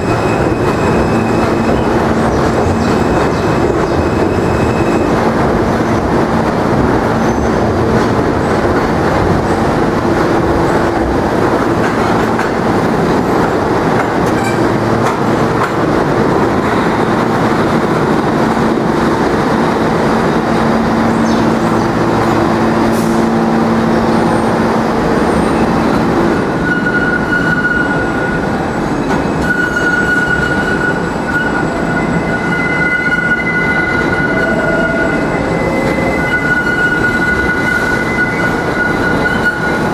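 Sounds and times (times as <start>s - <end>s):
low train hum: 0.0s - 39.9s
train wheels rumbling on rail: 0.0s - 39.9s
high-pitched wheel squeal: 29.4s - 39.9s.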